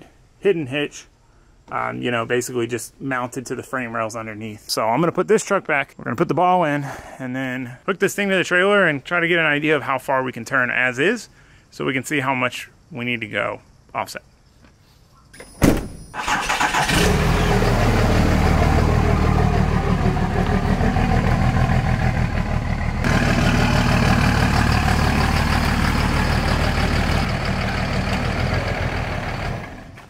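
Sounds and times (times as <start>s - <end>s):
pickup truck engine running: 16.7s - 30.0s.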